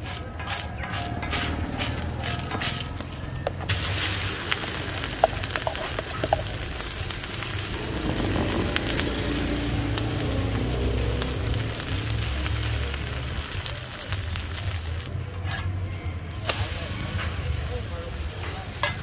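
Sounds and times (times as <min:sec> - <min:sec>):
spoon spreading oil on griddle: 0:00.0 - 0:03.1, 0:03.7 - 0:09.4, 0:11.2 - 0:19.0
egg sizzling in hot oil: 0:03.7 - 0:15.1.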